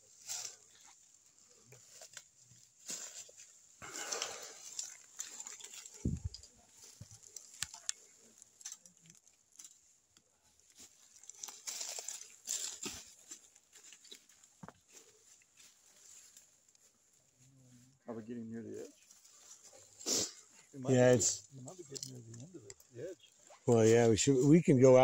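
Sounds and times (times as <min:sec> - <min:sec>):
footsteps crunching through brush: 0:00.0 - 0:08.8, 0:10.7 - 0:17.2
branches rustling and cracking: 0:00.0 - 0:17.8, 0:18.8 - 0:25.0.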